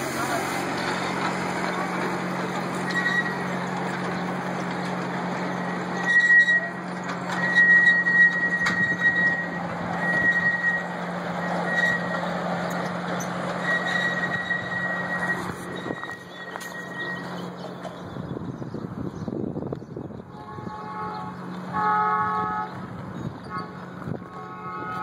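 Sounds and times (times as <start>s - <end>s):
rolling wheel noise: 0.0s - 25.0s
train motor hum: 0.0s - 25.0s
wheels clacking on rails: 0.0s - 25.0s
high-pitched wheel squeal: 2.8s - 3.7s, 5.4s - 18.1s, 20.4s - 25.0s.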